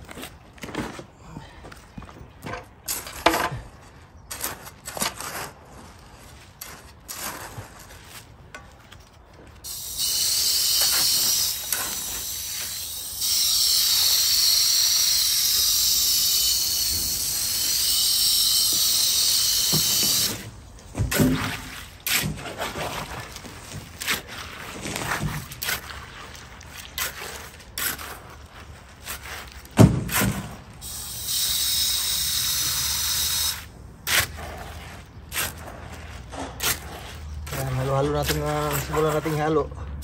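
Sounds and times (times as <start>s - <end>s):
hose nozzle spraying water: 9.7s - 20.4s, 30.8s - 34.2s.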